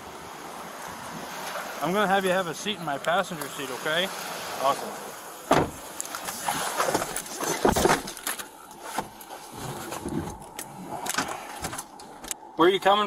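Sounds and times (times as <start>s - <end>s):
heavy thumps: 5.5s - 5.8s
clothing and gear rustling: 5.8s - 12.3s.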